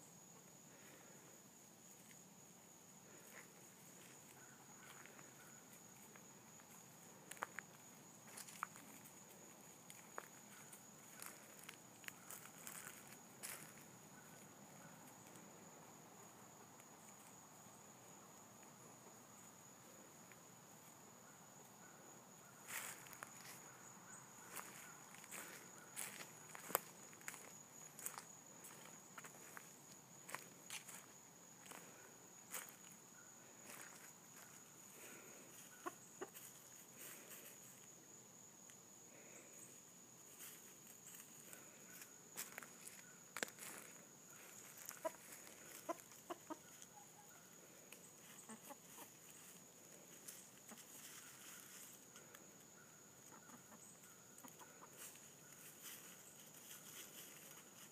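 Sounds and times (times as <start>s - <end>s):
high insect trill: 0.0s - 57.9s
rustling in dry leaves: 8.3s - 13.8s, 40.3s - 46.8s, 48.2s - 52.4s, 54.6s - 57.9s
footsteps on dry leaves: 10.0s - 13.8s, 24.5s - 29.7s, 30.3s - 31.8s, 42.4s - 45.8s
chickens clucking softly: 35.5s - 36.8s, 44.6s - 47.3s, 48.2s - 49.6s, 50.6s - 51.9s, 53.2s - 55.8s.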